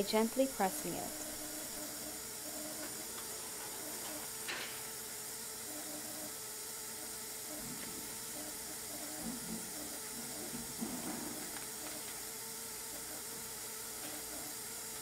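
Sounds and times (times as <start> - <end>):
gas venting hiss: 0.0 - 15.0.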